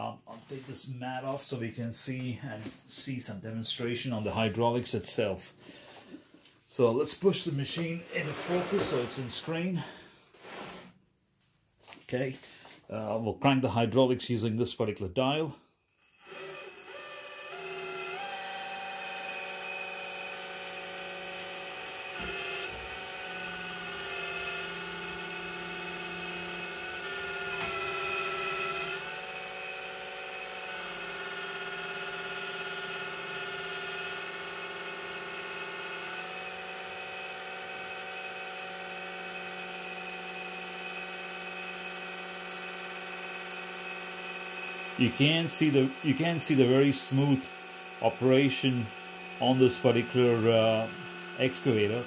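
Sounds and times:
hydraulic pump whining: 5.6s - 10.0s, 15.9s - 52.0s.

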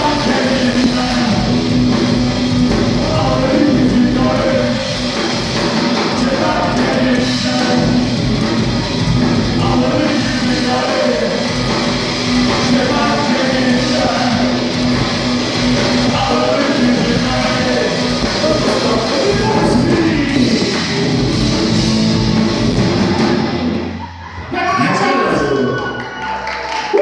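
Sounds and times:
person singing: 0.0s - 1.6s, 2.9s - 5.1s, 6.0s - 8.2s, 9.5s - 11.9s, 12.5s - 14.8s, 16.0s - 20.8s
electric guitars: 0.0s - 24.5s
bass: 0.0s - 27.0s
drums: 0.0s - 27.0s.

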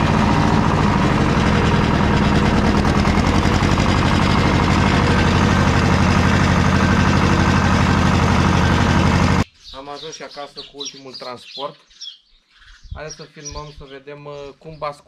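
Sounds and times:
tractor engine chugging: 0.0s - 9.4s.

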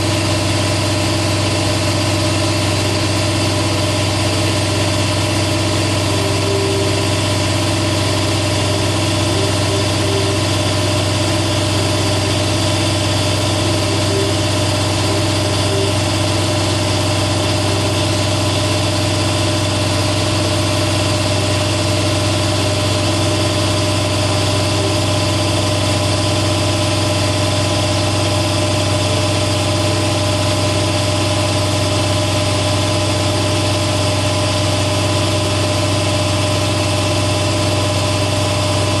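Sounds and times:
air compressor drone: 0.0s - 39.0s.

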